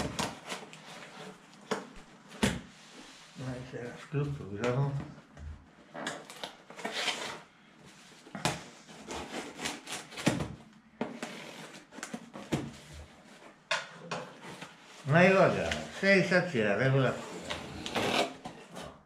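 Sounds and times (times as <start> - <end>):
knife slitting packing tape: 17.8 - 18.4.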